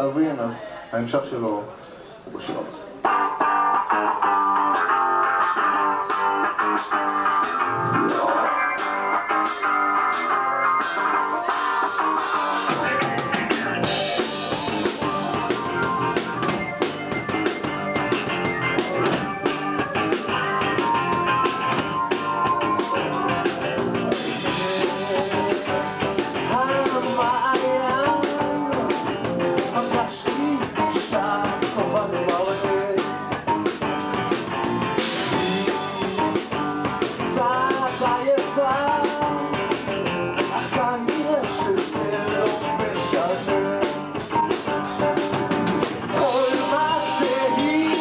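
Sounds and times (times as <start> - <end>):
live rock band playing: 2.5 - 48.0
man singing: 23.3 - 33.4, 35.4 - 36.5, 37.2 - 39.8, 40.4 - 45.5, 46.1 - 48.0.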